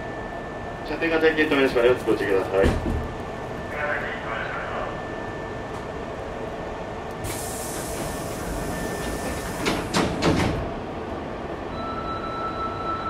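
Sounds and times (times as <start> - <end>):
train doors thudding shut: 2.5 - 3.2, 7.2 - 10.8
air hissing: 7.2 - 10.0.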